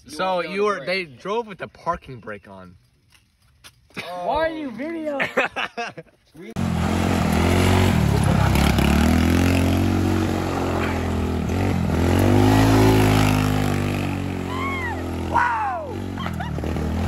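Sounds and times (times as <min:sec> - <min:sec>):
go-kart engine passing: 0:06.6 - 0:17.0.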